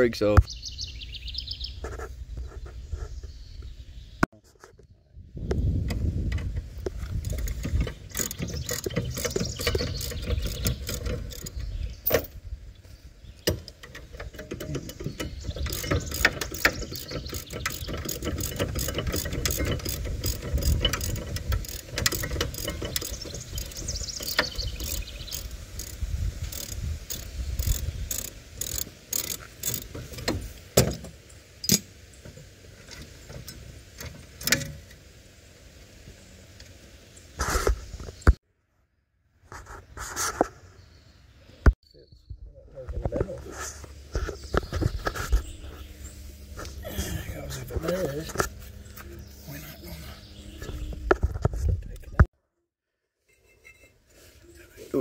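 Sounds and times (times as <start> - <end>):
ratchet wrench clicking: 7.2 - 11.6, 13.8 - 30.0
sharp metallic knocks: 7.3 - 12.3, 13.5 - 25.9.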